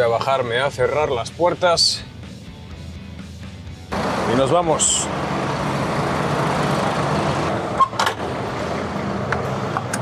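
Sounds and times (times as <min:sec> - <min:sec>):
truck diesel engine idling: 0:03.9 - 0:09.7.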